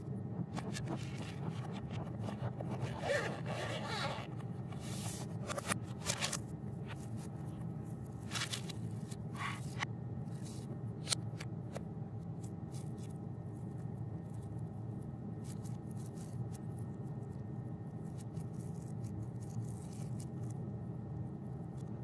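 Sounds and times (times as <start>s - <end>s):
low hum: 0.0s - 22.0s
case zipper: 0.6s - 6.3s
paper and plastic rustling: 0.6s - 9.8s.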